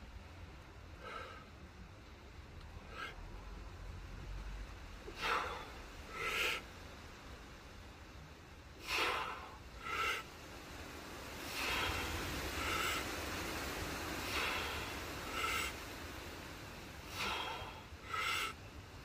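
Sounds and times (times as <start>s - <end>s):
person breathing forcefully: 0.9s - 1.7s, 2.8s - 3.4s, 5.0s - 6.8s, 8.7s - 18.7s.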